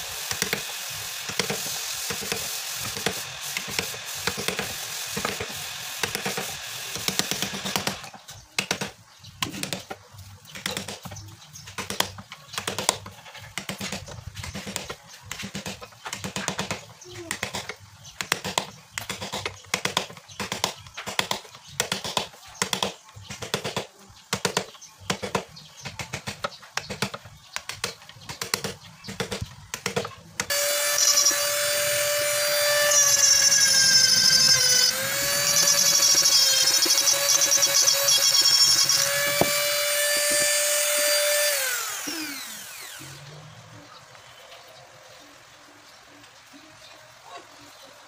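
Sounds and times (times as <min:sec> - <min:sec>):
electric rotary tool grinding wood: 0:00.0 - 0:08.2, 0:30.4 - 0:43.4.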